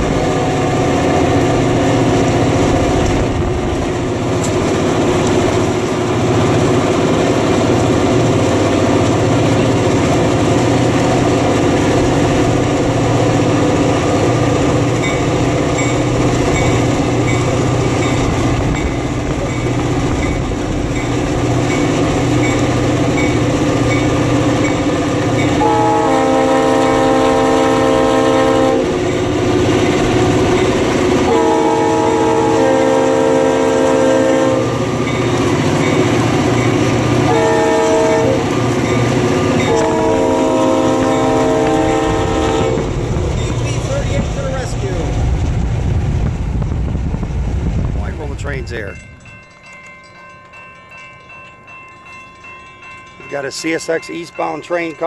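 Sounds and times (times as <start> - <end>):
diesel locomotive engine: 0.0 - 55.0
wheels rumbling on rails: 0.0 - 55.0
multi-note air horn: 25.6 - 29.0, 31.3 - 34.7, 37.3 - 38.4, 39.7 - 42.9.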